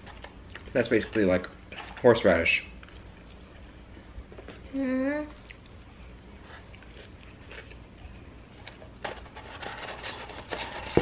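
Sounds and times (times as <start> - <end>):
paper packaging crinkling: 8.7 - 11.0.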